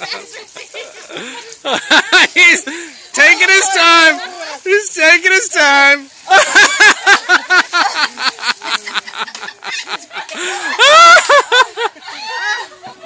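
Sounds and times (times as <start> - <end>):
woman laughing and shrieking: 6.3 - 13.0.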